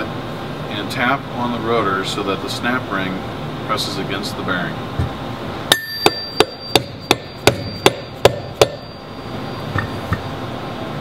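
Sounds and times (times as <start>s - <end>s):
mallet tapping metal rotor: 5.7s - 9.0s.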